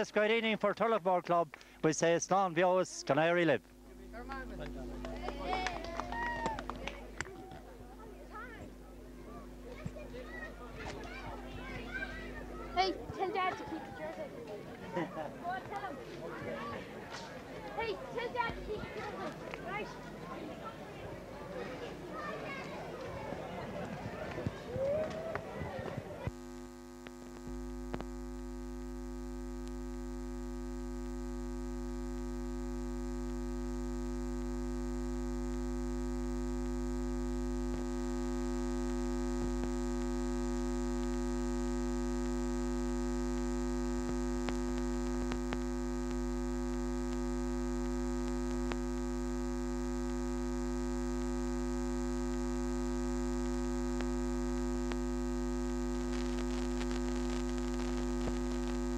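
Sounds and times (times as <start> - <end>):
electrical mains hum: 0.0 - 58.9
crowd noise: 3.7 - 26.4
faint clicks: 27.0 - 28.2, 43.2 - 48.9.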